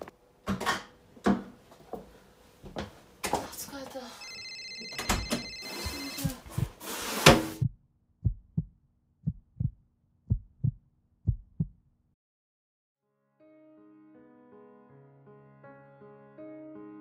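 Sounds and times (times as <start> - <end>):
heartbeat thumps: 5.8 - 6.8, 7.6 - 11.8
soft keyboard music: 13.4 - 17.0.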